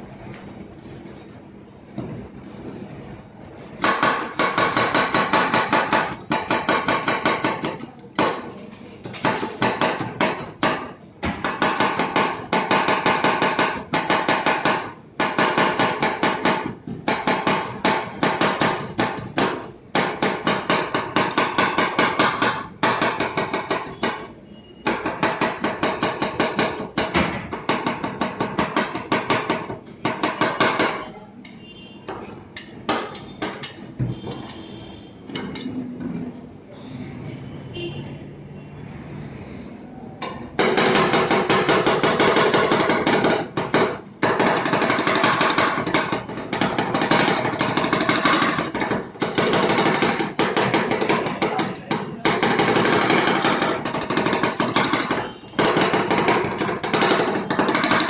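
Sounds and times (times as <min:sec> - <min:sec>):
metal spatulas clacking on plate: 0:30.8 - 0:34.6, 0:35.4 - 0:35.8, 0:44.4 - 0:58.0.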